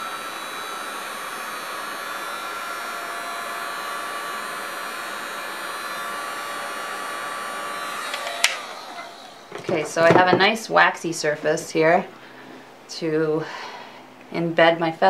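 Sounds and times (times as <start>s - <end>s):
heat gun blowing air: 0.0s - 10.3s
faint fan motor whine: 0.0s - 15.0s.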